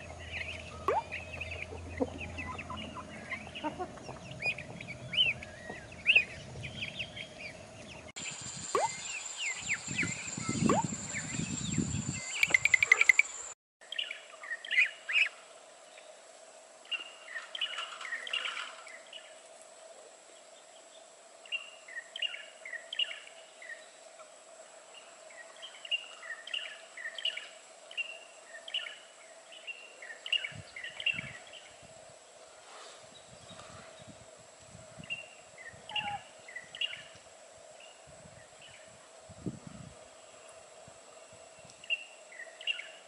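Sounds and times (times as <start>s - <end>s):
small birds chirping: 0.0s - 15.3s.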